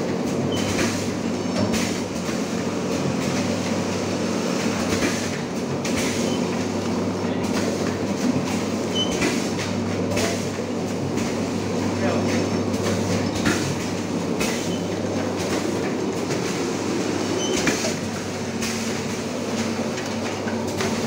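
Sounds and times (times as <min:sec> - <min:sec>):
packing machine hum and clatter: 0:00.0 - 0:21.0.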